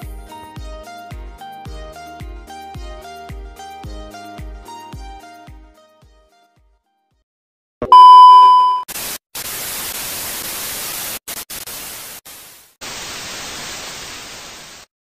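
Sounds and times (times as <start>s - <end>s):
loud steady beep: 7.9s - 8.9s
tv static hiss: 8.9s - 14.9s.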